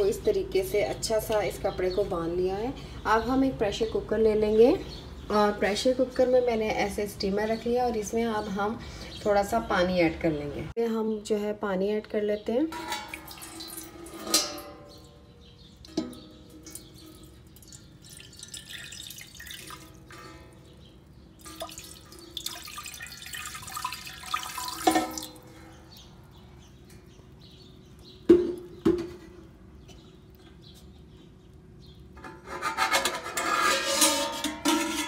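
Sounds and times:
water pouring and dripping: 0:12.8 - 0:14.7, 0:15.8 - 0:25.6.

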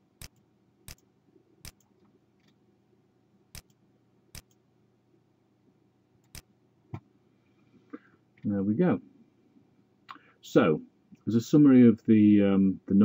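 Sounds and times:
faint low hum: 0:00.0 - 0:13.0
computer mouse clicks: 0:00.2 - 0:02.6, 0:03.5 - 0:04.6, 0:06.2 - 0:06.5.

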